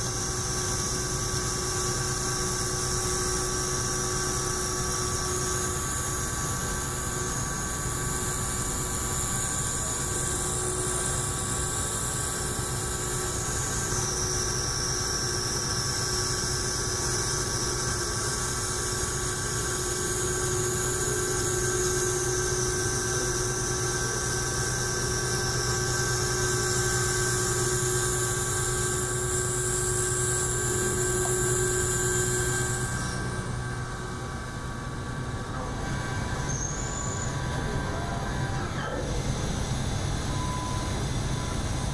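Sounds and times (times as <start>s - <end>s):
milling machine cutting steel: 17.4s - 39.8s.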